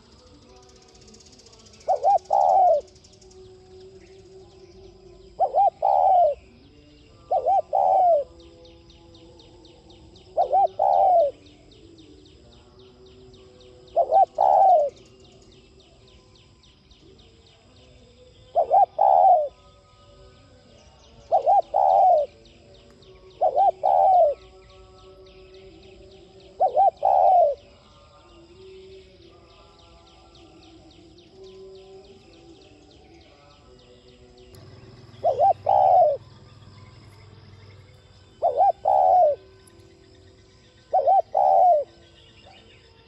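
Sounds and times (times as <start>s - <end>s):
dove cooing: 1.5s - 3.3s, 4.8s - 6.6s, 7.2s - 8.5s, 10.1s - 11.9s, 13.8s - 15.4s, 18.5s - 19.6s, 21.2s - 22.5s, 23.2s - 24.6s, 26.0s - 27.8s, 34.6s - 37.3s, 38.3s - 39.6s, 40.9s - 42.6s.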